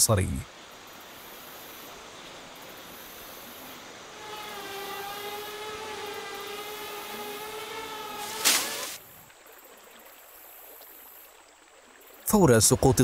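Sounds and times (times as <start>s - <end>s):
river rushing: 0.6s - 9.5s
drone propellers whining: 3.7s - 9.0s.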